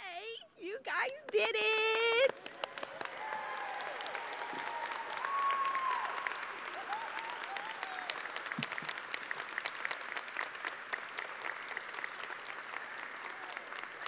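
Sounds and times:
audience applauding: 0:01.2 - 0:14.0
audience cheering: 0:02.5 - 0:10.0.

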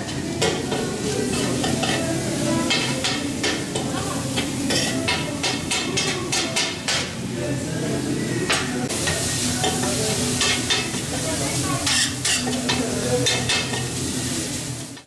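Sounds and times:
meat sizzling in a steel pan: 0:00.0 - 0:07.2, 0:08.5 - 0:15.0
spatula scraping metal pan: 0:11.8 - 0:13.8.

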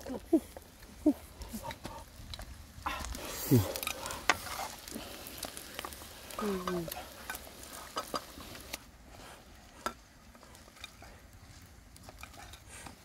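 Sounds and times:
insects sizzling in oil: 0:03.2 - 0:08.8
spatula scraping a wok: 0:03.8 - 0:05.9.

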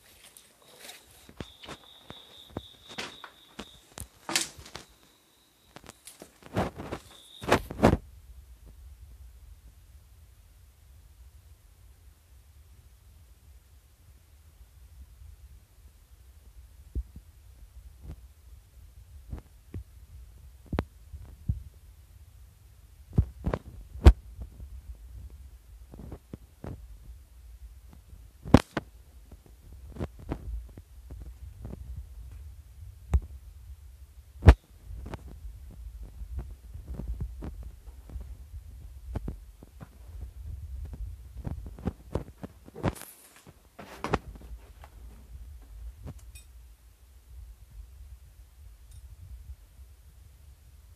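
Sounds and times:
rustling crunch: 0:00.0 - 0:05.1, 0:05.8 - 0:08.0, 0:34.5 - 0:46.1.

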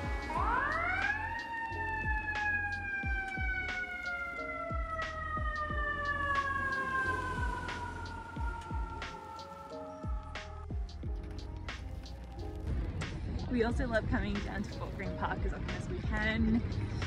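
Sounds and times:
emergency vehicle siren wailing: 0:00.0 - 0:12.6
background music with beat: 0:00.0 - 0:17.0.

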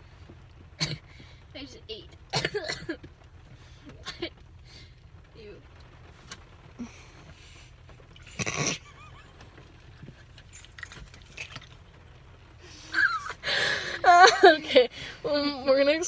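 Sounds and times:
low steady hum: 0:00.0 - 0:16.0
women laughing and giggling: 0:12.9 - 0:14.9.

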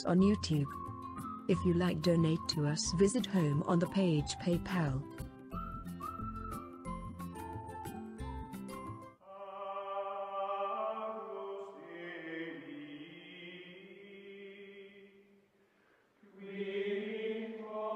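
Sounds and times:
choral voices holding chords: 0:09.2 - 0:15.3, 0:16.2 - 0:17.9.

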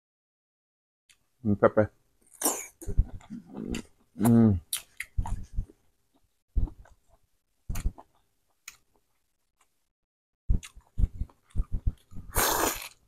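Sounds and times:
mouth clicks and smacks chewing: 0:02.8 - 0:09.0.

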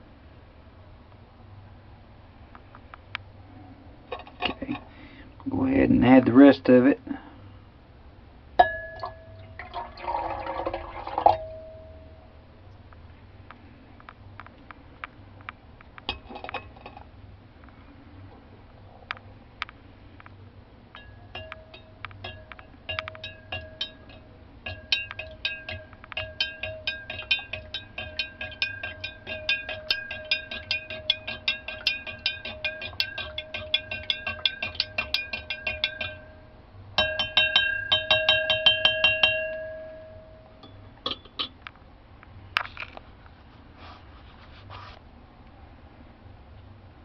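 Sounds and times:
spoon clinking against glass beaker: 0:08.6 - 0:09.8, 0:21.0 - 0:36.4, 0:37.0 - 0:41.6.

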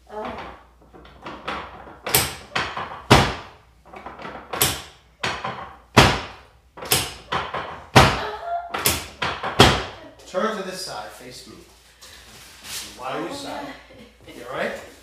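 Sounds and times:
wooden table knocking: 0:00.2 - 0:10.0.

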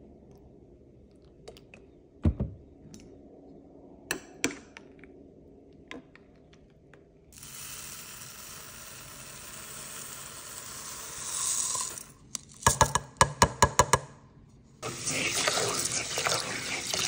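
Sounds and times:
rice grains pouring into pot: 0:07.4 - 0:12.2.

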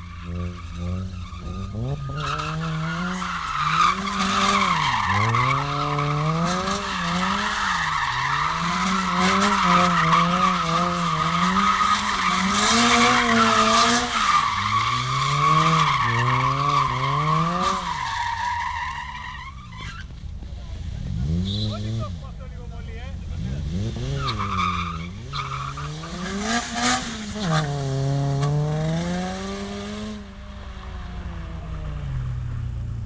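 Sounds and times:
car engine revving: 0:00.0 - 0:33.0
tyres screeching: 0:24.0 - 0:26.3.

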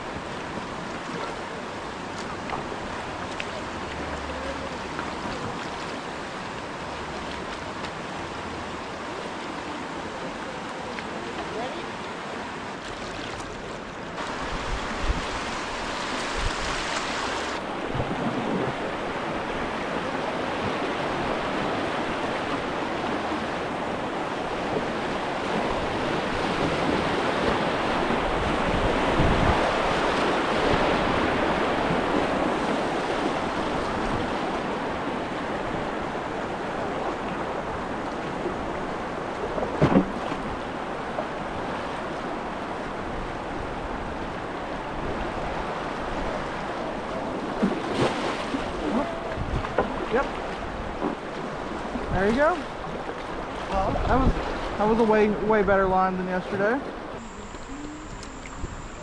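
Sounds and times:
river rapid rushing: 0:00.0 - 0:59.0
short knocks or splashes: 0:39.6 - 0:40.5, 0:47.6 - 0:51.4.

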